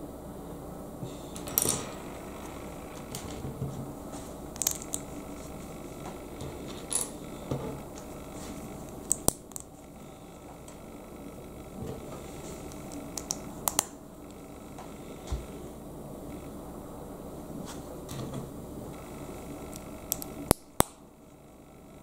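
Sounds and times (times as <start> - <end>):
plastic bricks clicking: 4.6 - 5.1, 8.9 - 9.7, 12.8 - 13.9, 19.7 - 20.9.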